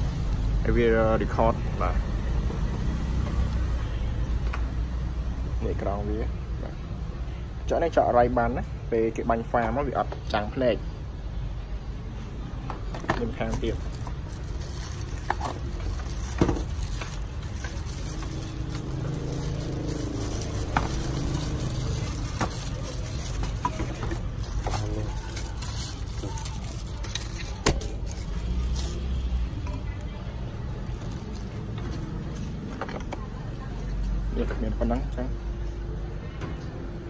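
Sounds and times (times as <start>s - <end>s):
plastic packaging rustling: 13.2s - 28.8s.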